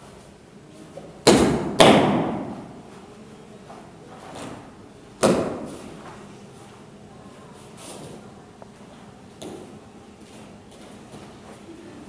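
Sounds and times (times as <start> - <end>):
sharp slaps with echo: 1.2 - 2.7, 5.2 - 5.8.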